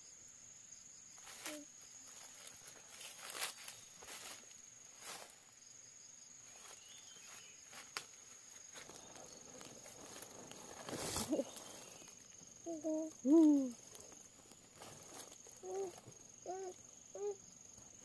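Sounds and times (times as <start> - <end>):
insect buzzing: 0.0 - 18.0
crunching footsteps: 1.2 - 5.5, 6.5 - 16.8
rustling: 6.5 - 16.8.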